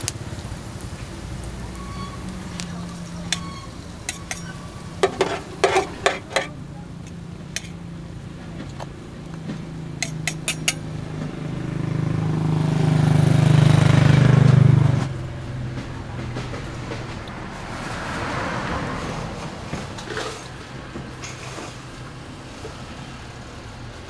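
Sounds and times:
engine drone: 0:00.0 - 0:24.0
metal tongs and spatula clinking: 0:03.3 - 0:07.8, 0:10.0 - 0:10.8.

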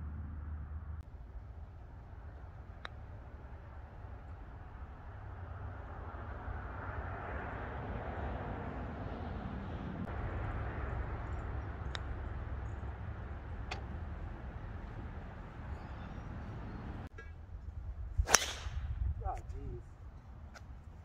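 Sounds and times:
low rumble: 0:00.0 - 0:07.2, 0:08.4 - 0:19.2
distant engine drone: 0:00.0 - 0:17.5
putter striking golf ball: 0:13.6 - 0:14.0.

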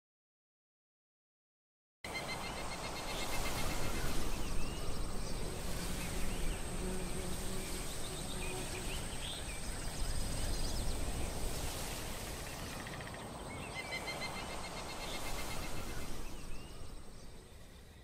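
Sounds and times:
high insect drone: 0:02.1 - 0:13.2
birds chirping: 0:02.1 - 0:18.0
insects trilling: 0:02.1 - 0:18.0.

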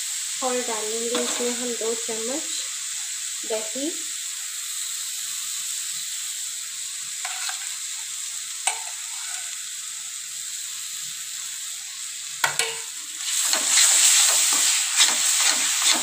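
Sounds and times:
masala sizzling in oil: 0:00.0 - 0:16.0
spoon clinking on pan: 0:12.4 - 0:12.9.

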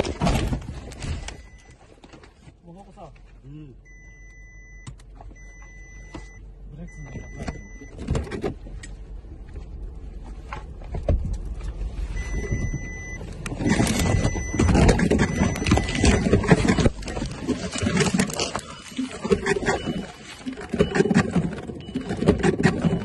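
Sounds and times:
electronic beep: 0:03.9 - 0:07.9, 0:12.2 - 0:23.0
water sloshing and splashing: 0:12.2 - 0:23.0.

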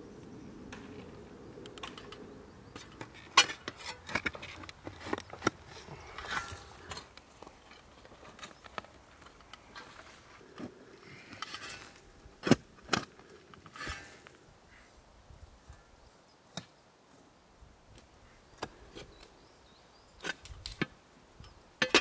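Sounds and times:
loose soil rustling: 0:00.0 - 0:15.9
shovel striking and scraping: 0:06.2 - 0:07.1.

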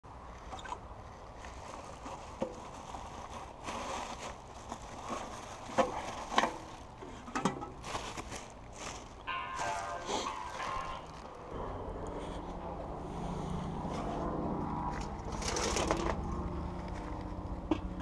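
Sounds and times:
outdoor background noise: 0:00.0 - 0:18.0
plastic bag crinkling: 0:01.4 - 0:11.6, 0:14.9 - 0:16.5.

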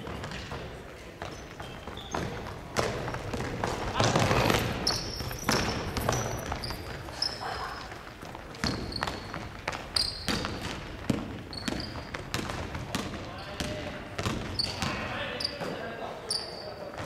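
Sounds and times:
basketball bouncing on hardwood floor: 0:00.0 - 0:07.0, 0:08.6 - 0:15.0
sneakers squeaking on court: 0:00.0 - 0:17.0.

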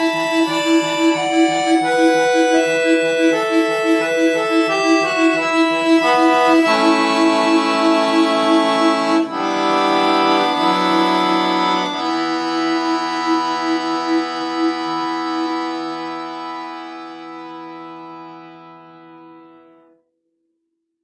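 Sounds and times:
piano accordion playing: 0:00.0 - 0:20.0.

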